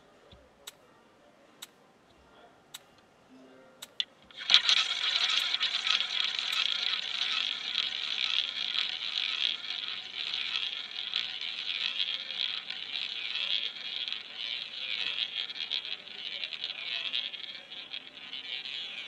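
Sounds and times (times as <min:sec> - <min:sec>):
roulette ball whirring: 0:03.8 - 0:19.0.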